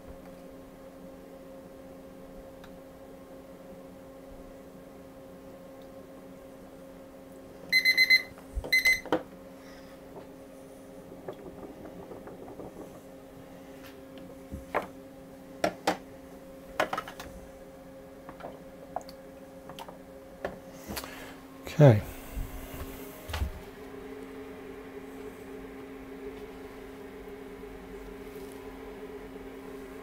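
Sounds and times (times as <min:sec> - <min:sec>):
steady low hum: 0:00.0 - 0:30.0
digital timer beeping: 0:07.8 - 0:09.0.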